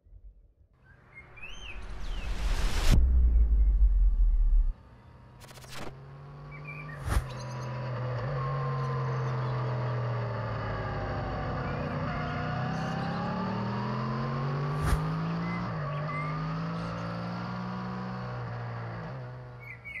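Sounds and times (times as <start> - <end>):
motorcycle engine revving: 5.4 - 20.0.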